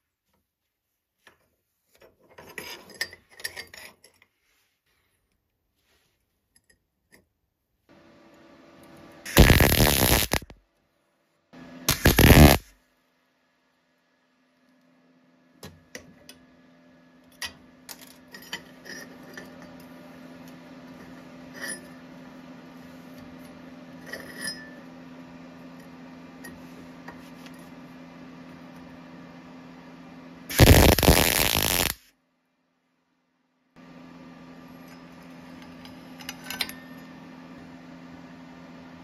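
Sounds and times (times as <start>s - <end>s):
welding arc crackle: 9.3s - 10.6s, 11.9s - 12.7s, 30.5s - 32.0s
welding machine humming: 9.3s - 10.6s, 11.9s - 12.7s, 30.5s - 32.0s.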